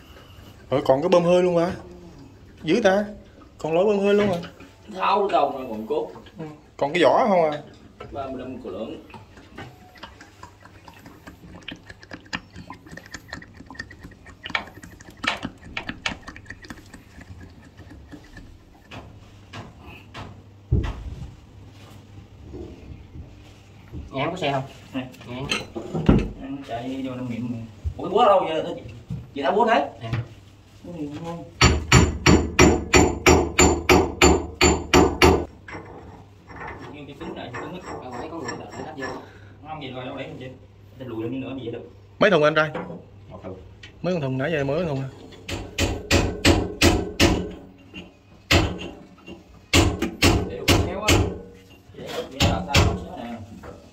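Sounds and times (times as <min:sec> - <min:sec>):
sharp metal knocks: 0:31.6 - 0:35.5, 0:45.5 - 0:47.7, 0:48.5 - 0:49.0, 0:49.7 - 0:51.6.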